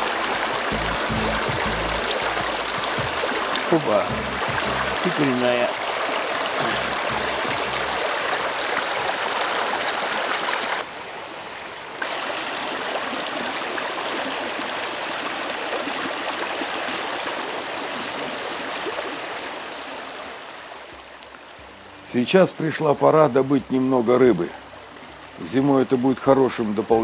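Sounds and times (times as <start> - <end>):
creek rushing over rocks: 0.0 - 21.0.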